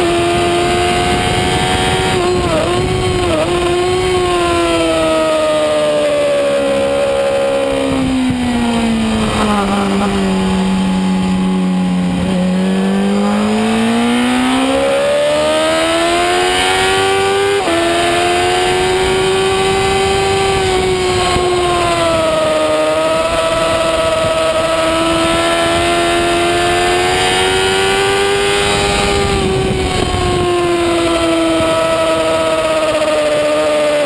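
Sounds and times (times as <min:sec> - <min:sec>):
wind rush: 0:00.0 - 0:33.6
motorcycle engine revving: 0:00.0 - 0:34.0.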